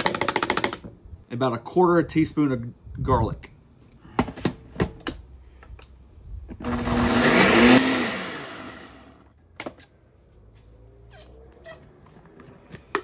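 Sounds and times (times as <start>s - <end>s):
blender motor running: 6.6s - 9.3s.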